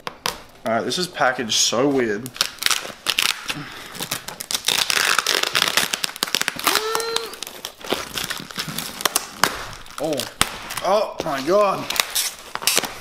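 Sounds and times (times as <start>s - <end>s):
cardboard packaging tearing: 2.3s - 13.0s
person grunting: 6.6s - 7.4s.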